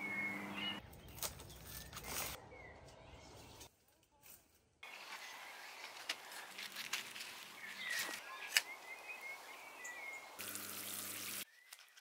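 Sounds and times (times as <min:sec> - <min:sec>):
bird chirps: 0:00.0 - 0:03.7, 0:07.6 - 0:10.4.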